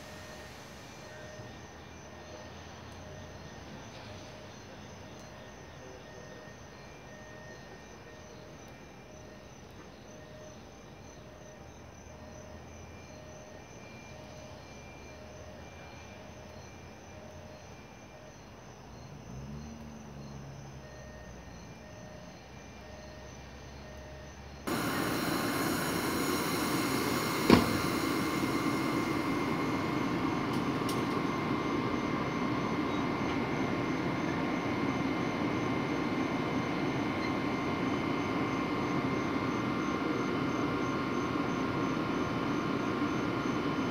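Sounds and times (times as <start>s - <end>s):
train humming: 0.0s - 6.0s, 20.4s - 43.9s
insects chirping: 0.0s - 43.9s
locomotive cooling blowers drone: 0.0s - 43.9s.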